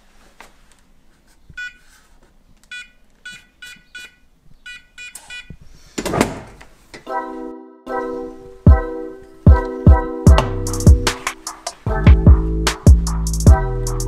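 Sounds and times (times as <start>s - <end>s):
keypad beeps: 2.7s - 5.5s.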